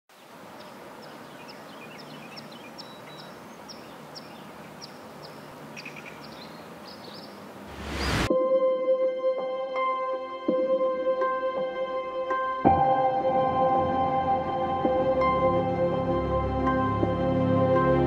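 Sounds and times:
small birds chirping: 0.1s - 7.7s
steady outdoor hiss: 0.1s - 8.3s
rising whoosh: 7.6s - 8.3s
ambient music with sustained tones: 8.2s - 18.0s.

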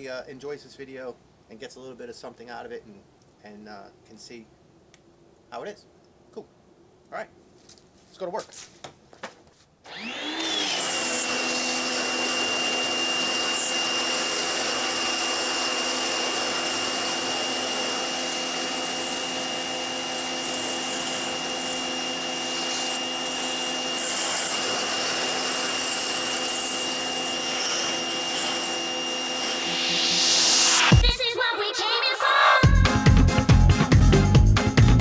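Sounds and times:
pressure washer motor humming: 9.9s - 31.1s.

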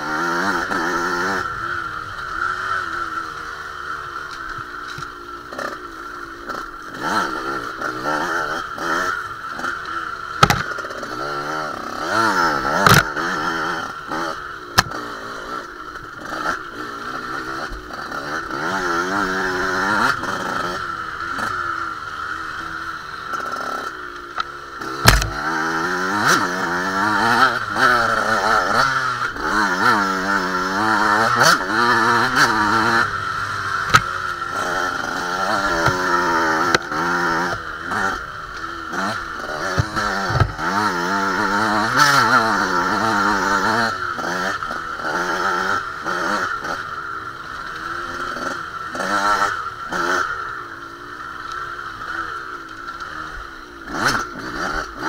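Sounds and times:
dirt bike engine revving: 0.0s - 55.0s
bike knocking on bumps: 10.4s - 10.8s, 25.0s - 25.4s, 33.8s - 34.2s, 39.6s - 40.7s.

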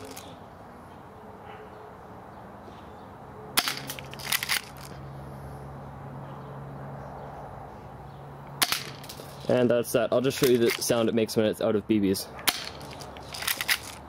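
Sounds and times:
airsoft pistol shots: 3.6s - 4.0s, 8.6s - 9.0s, 12.4s - 12.8s.

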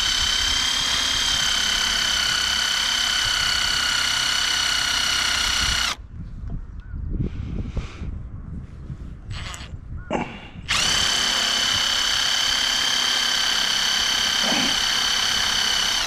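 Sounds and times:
power drill running: 0.0s - 6.0s, 9.3s - 9.7s, 10.7s - 16.0s.

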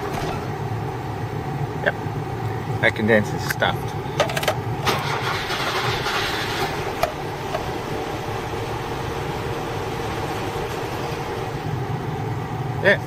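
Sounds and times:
car engine misfiring: 0.0s - 1.0s, 4.0s - 12.0s.

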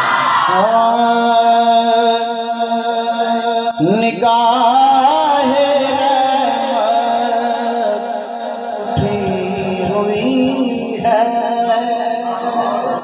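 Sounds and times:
man singing through loudspeaker: 0.4s - 13.0s.

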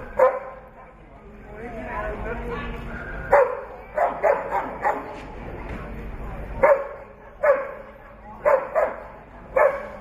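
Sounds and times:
dog barking: 0.2s - 0.6s, 3.3s - 5.2s, 6.6s - 7.8s, 8.4s - 10.0s.

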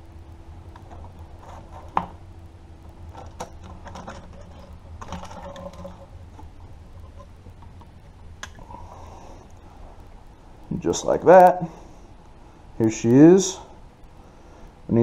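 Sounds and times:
low steady hum: 0.0s - 15.0s
plastic parts clicking and rattling: 3.1s - 8.6s.

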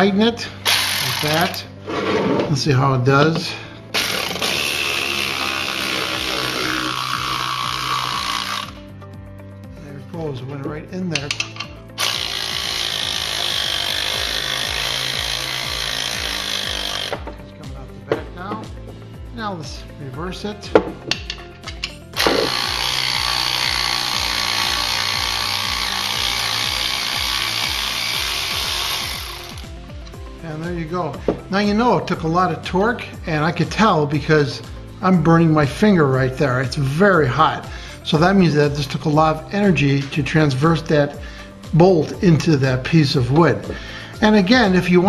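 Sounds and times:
cordless ratchet wrench whining: 0.6s - 1.7s, 3.9s - 8.9s, 11.2s - 17.3s, 21.1s - 30.2s.

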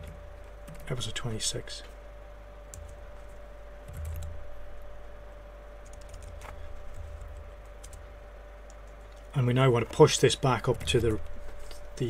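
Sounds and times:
steady electrical hum: 0.0s - 12.0s
scattered clicks: 2.7s - 4.4s, 5.8s - 10.0s.

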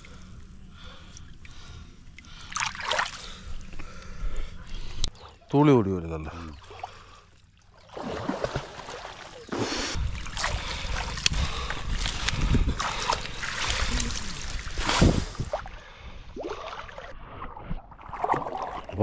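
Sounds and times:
water splashing from wading: 2.5s - 3.4s, 6.6s - 15.8s, 18.0s - 19.0s.

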